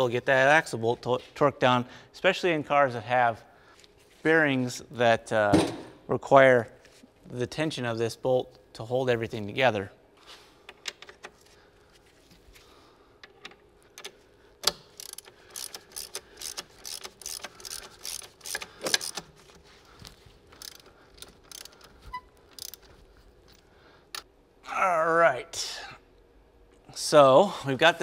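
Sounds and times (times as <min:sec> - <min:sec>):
ratchet wrench clicking: 0:14.6 - 0:19.2, 0:20.6 - 0:21.9, 0:22.5 - 0:22.9.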